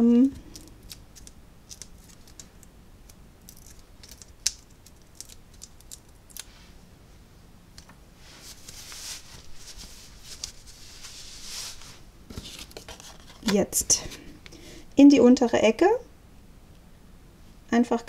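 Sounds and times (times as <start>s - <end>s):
paper sliding and rustling: 8.2s - 14.3s.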